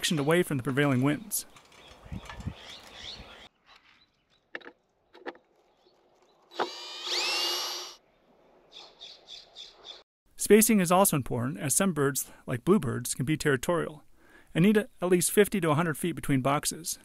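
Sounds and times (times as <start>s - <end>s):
cordless drill driving screw: 6.5s - 8.0s.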